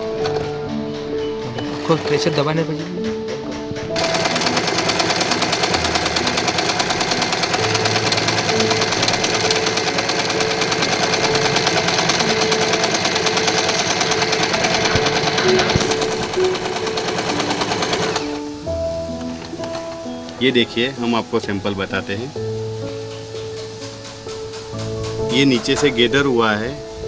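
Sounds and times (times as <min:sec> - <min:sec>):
sewing machine running: 0:01.7 - 0:18.5.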